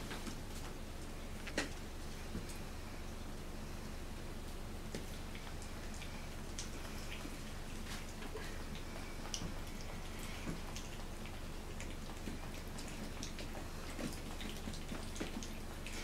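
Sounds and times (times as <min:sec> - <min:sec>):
low steady hum: 0:00.0 - 0:16.0
puppies lapping water: 0:04.9 - 0:16.0.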